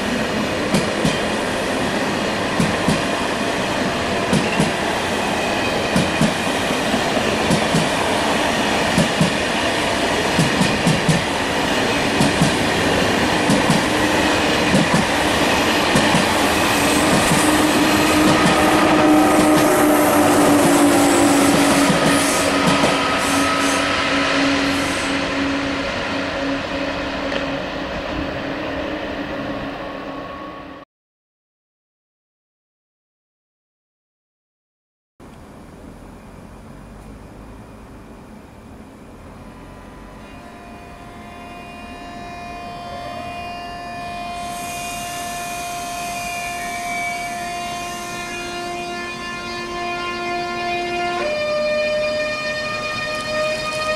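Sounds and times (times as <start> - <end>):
high-speed train wheel and rail noise: 0.0 - 30.8, 35.2 - 53.9
high hiss: 2.6 - 27.8
traction motor whine: 3.1 - 30.4, 38.9 - 53.9.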